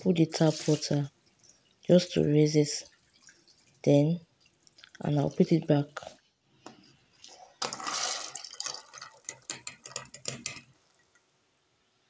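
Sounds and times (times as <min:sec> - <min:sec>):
water pouring and splashing: 0:00.1 - 0:02.0, 0:02.7 - 0:05.8, 0:07.2 - 0:10.2
small splashes and knocks: 0:02.8 - 0:03.8, 0:06.7 - 0:11.2.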